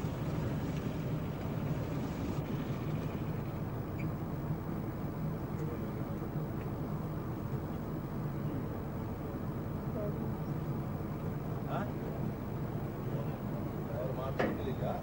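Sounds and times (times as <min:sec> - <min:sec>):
low engine drone: 0:00.0 - 0:15.0.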